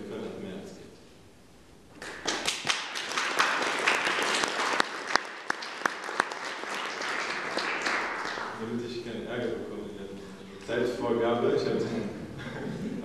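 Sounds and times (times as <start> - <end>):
audience applauding: 2.0 - 8.6
sharp single claps: 2.0 - 8.6.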